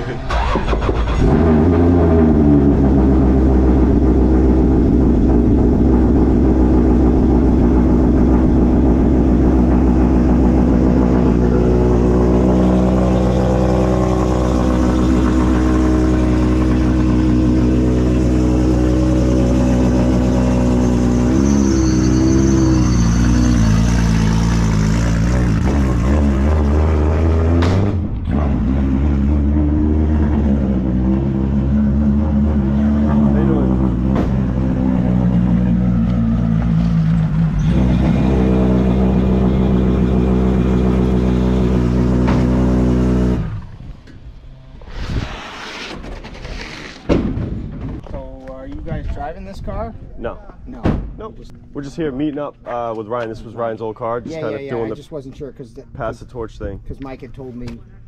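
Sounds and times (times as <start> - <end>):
car engine starting and idling: 0.0 - 44.9.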